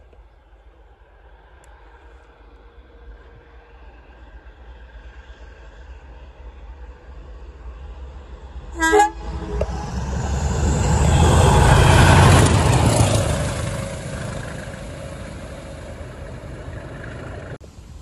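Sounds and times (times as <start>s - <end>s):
diesel locomotives passing: 0.0s - 18.0s
locomotive horn blast: 8.8s - 13.4s.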